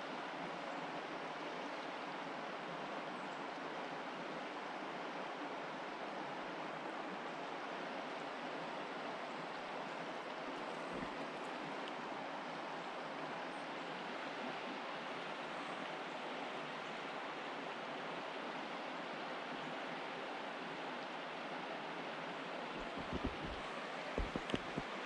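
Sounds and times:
creek water rushing: 0.0s - 25.0s
low thumps: 22.8s - 23.6s, 24.2s - 24.8s.

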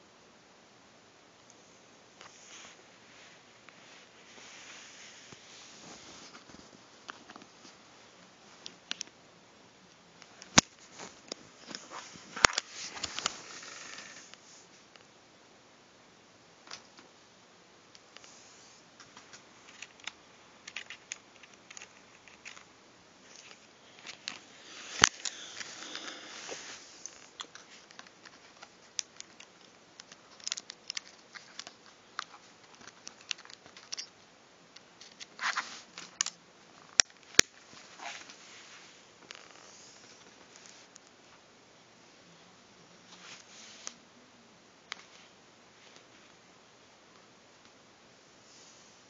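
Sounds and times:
small plastic clicks: 27.0s - 34.1s.

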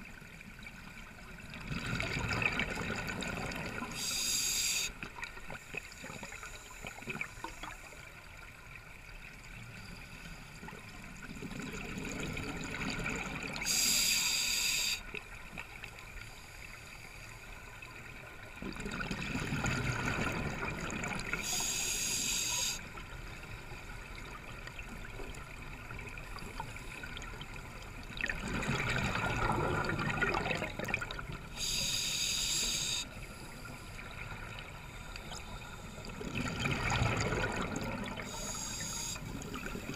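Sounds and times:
exhaled bubbles underwater: 1.4s - 4.1s, 10.7s - 13.9s, 18.5s - 21.7s, 24.2s - 31.8s, 34.1s - 39.9s
regulator inhale hiss: 3.8s - 5.0s, 5.8s - 8.1s, 13.6s - 15.2s, 21.3s - 22.9s, 31.5s - 34.1s, 38.2s - 39.9s.

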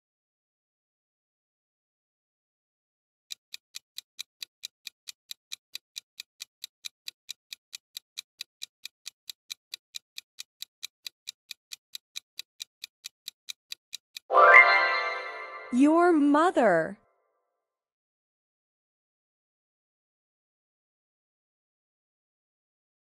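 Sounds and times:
clock ticking: 3.3s - 16.8s.

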